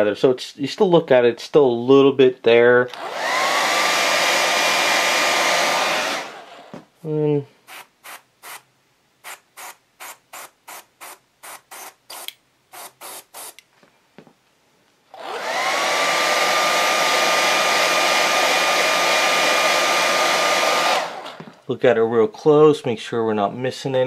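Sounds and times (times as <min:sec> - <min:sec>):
hair dryer blowing: 0:03.0 - 0:06.8, 0:07.7 - 0:08.7, 0:15.2 - 0:21.6
airbrush hissing in spurts: 0:07.6 - 0:13.6.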